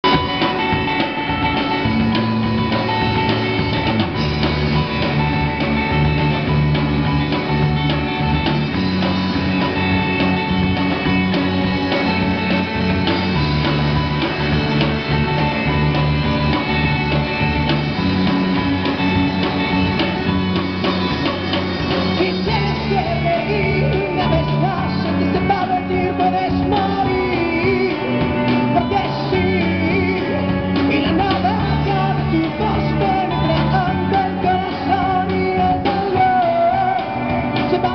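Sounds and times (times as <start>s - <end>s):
rock band playing: 0.0s - 37.9s
person singing: 21.9s - 37.9s.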